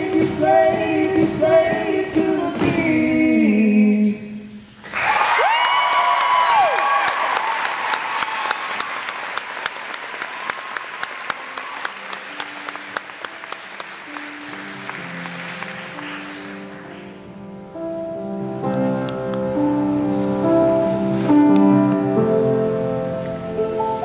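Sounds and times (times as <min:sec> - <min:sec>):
audience applause: 0:04.8 - 0:17.2
quiet instrumental music: 0:12.1 - 0:24.0.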